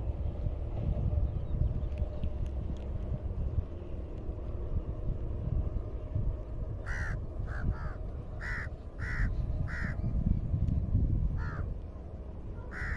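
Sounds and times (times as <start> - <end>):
wind rumble on microphone: 0.0 - 12.9
crow cawing: 6.8 - 10.0, 11.4 - 11.6, 12.7 - 12.9.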